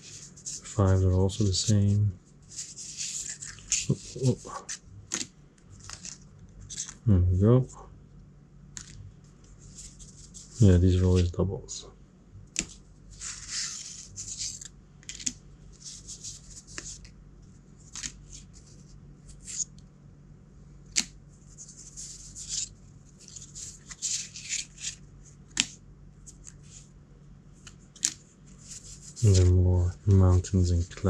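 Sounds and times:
cardboard pieces scraping and rustling: 0.0 - 7.0, 12.6 - 17.1, 17.8 - 19.7, 21.0 - 26.8, 27.6 - 31.0.

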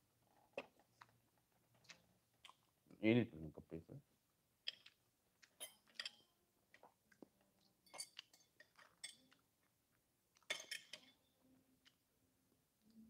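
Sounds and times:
knife and fork clinking on plate: 5.6 - 6.3, 7.8 - 9.4, 10.5 - 11.2.

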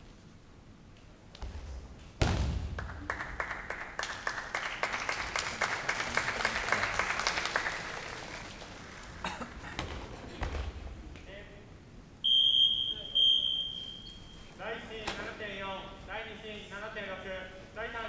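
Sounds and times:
sharp thud: 1.4 - 2.8
crowd applauding: 2.8 - 9.7.

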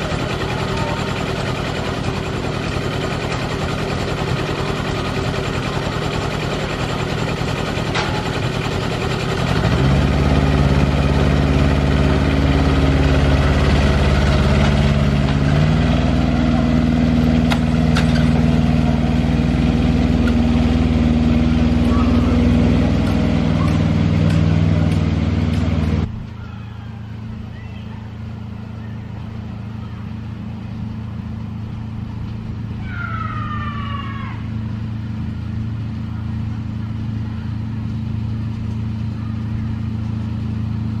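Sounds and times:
locomotive engine idling and revving: 0.0 - 41.0.

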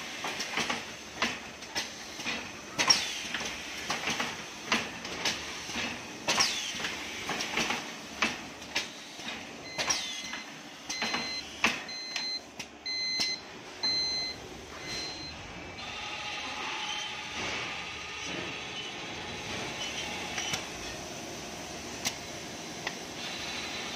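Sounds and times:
short electronic beeps: 9.7 - 15.4.

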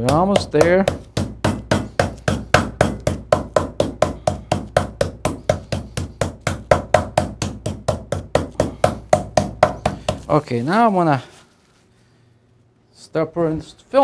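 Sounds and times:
meat mallet thudding on wooden board: 0.0 - 10.4.

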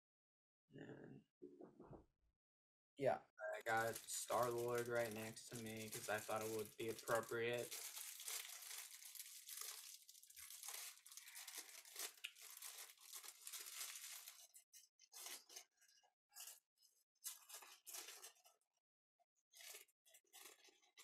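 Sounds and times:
plastic bag crinkling: 3.6 - 15.7, 17.2 - 18.6, 19.6 - 21.0.

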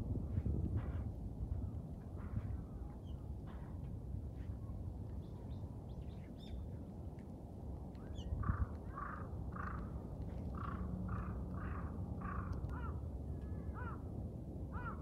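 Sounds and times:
low outdoor rumble: 0.0 - 15.0
crow cawing: 8.5 - 9.9, 10.6 - 13.0, 14.8 - 15.0.

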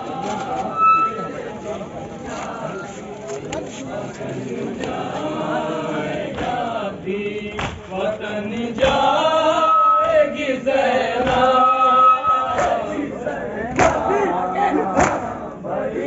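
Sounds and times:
crowd of men chanting: 0.0 - 16.0
chest-beating slaps: 12.5 - 12.9, 13.7 - 14.1, 14.9 - 15.4.

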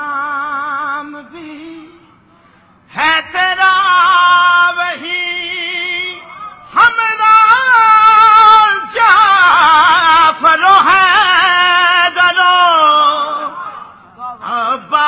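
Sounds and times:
man singing through a microphone: 0.0 - 2.2, 2.9 - 15.0.

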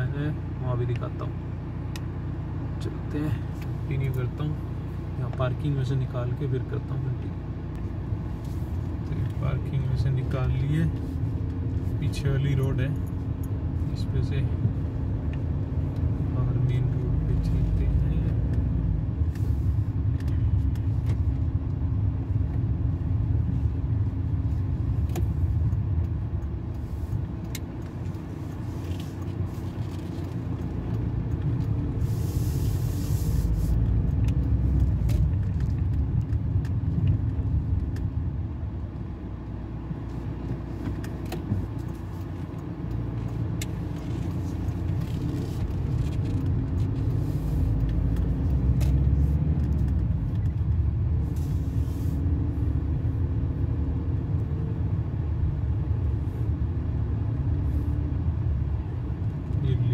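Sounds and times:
car driving rumble from inside: 0.0 - 59.9
brief hiss: 32.0 - 33.8.

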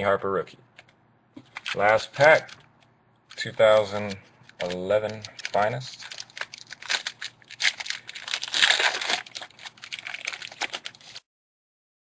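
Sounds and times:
foil wrapper tearing and crinkling: 3.4 - 11.2.

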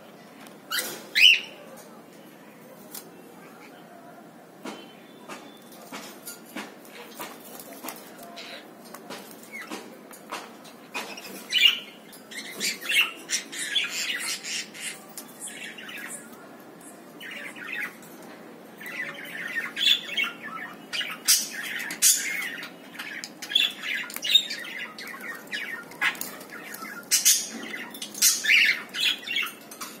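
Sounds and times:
cockatiels squawking and chirping: 11.0 - 16.3, 18.8 - 29.9.

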